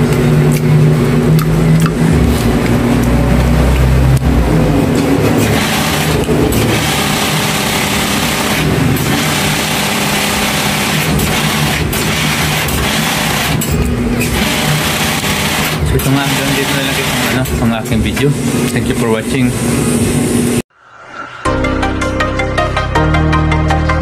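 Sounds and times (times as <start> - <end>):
engine humming: 0.0 - 18.8.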